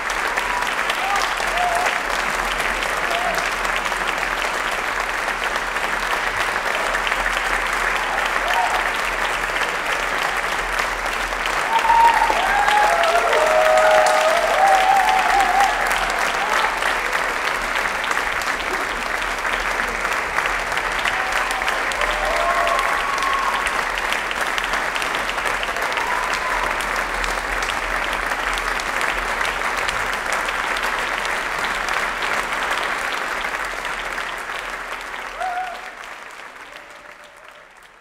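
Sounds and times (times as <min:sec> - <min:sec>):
audience applauding: 0:00.0 - 0:38.0
voices cheering: 0:00.3 - 0:02.2, 0:07.8 - 0:09.1, 0:11.5 - 0:17.2, 0:20.8 - 0:24.0, 0:25.6 - 0:27.0, 0:35.3 - 0:37.6.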